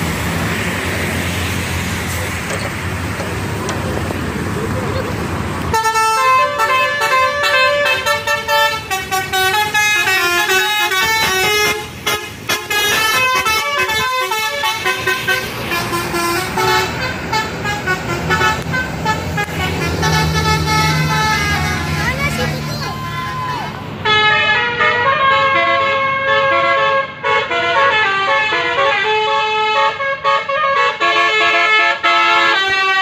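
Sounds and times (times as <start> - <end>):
bus engine rumble: 0.0 - 33.0
multi-tone air horn melody: 5.7 - 22.8, 24.0 - 33.0.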